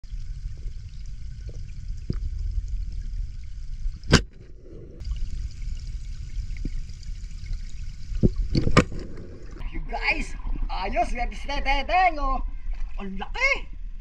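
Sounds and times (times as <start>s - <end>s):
underwater rumble of moving water: 0.0s - 11.1s.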